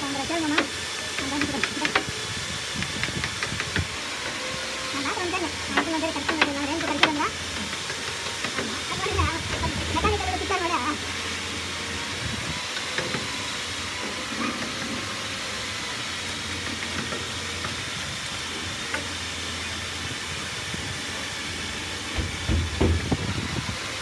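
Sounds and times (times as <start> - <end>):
hammer knocking on wood: 0.6 - 2.1, 5.7 - 10.2, 22.2 - 23.3.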